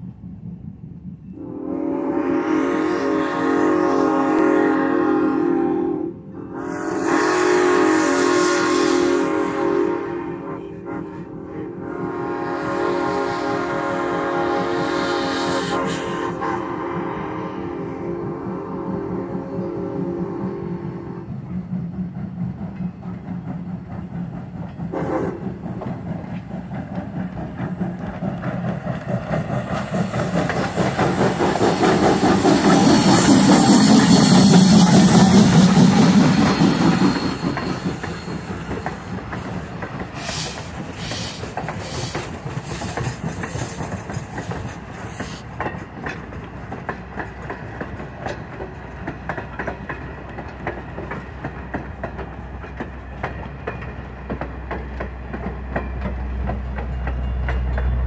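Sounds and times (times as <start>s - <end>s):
steam locomotive passing: 0.0s - 58.0s
steam hiss: 11.9s - 21.3s, 24.8s - 45.6s
wheels clicking over rail joints: 21.3s - 58.0s.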